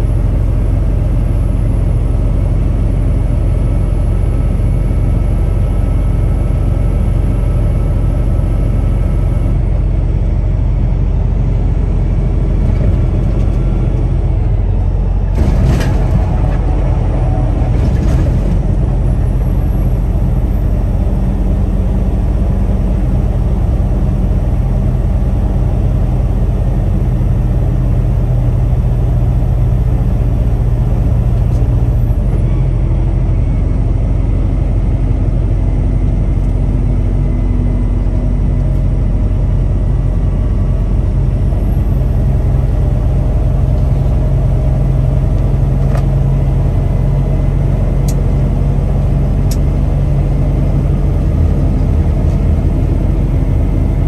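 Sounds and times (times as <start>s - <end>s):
truck engine droning: 0.0s - 54.0s
tyre and road noise: 11.6s - 23.3s.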